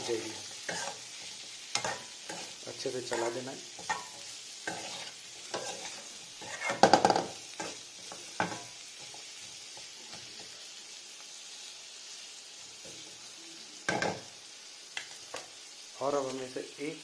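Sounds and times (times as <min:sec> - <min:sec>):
vegetables sizzling in a pan: 0:00.0 - 0:17.0
metal spoon scraping a pan: 0:00.2 - 0:10.5.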